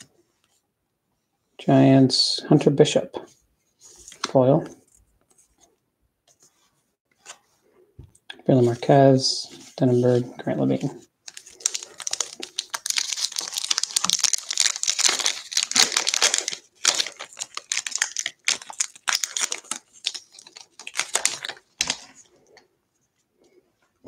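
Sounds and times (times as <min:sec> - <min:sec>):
plastic wrapper tearing and crinkling: 0:11.3 - 0:22.2.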